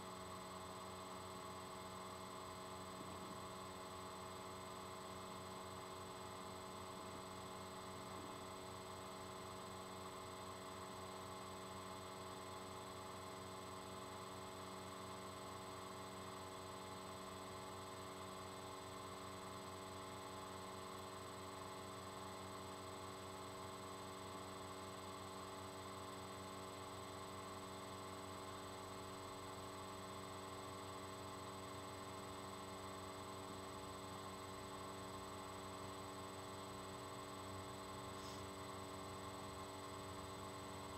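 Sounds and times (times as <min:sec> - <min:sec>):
thin high whine: 0:38.0 - 0:38.7.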